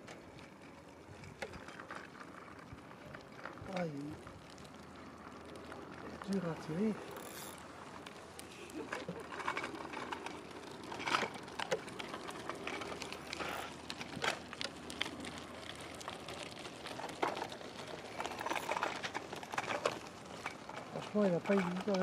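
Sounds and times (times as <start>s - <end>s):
fishing reel clicks: 7.2s - 7.6s.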